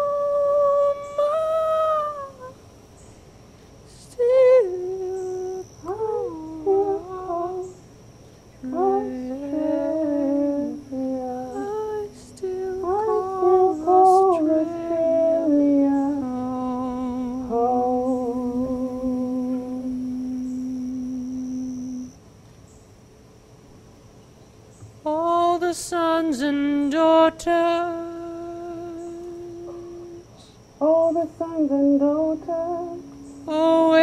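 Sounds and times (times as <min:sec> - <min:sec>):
woman humming: 0:00.0 - 0:02.6, 0:28.0 - 0:30.4
long low held note: 0:15.9 - 0:22.2.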